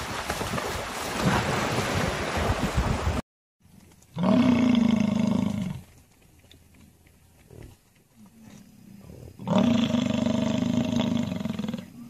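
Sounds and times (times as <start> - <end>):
hippopotamus splashing in water: 0.0 - 3.2.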